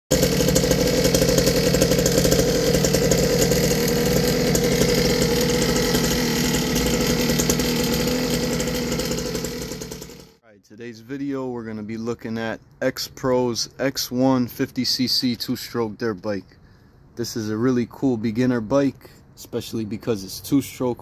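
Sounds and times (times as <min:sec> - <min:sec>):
dirt bike engine idling: 0:00.1 - 0:10.4.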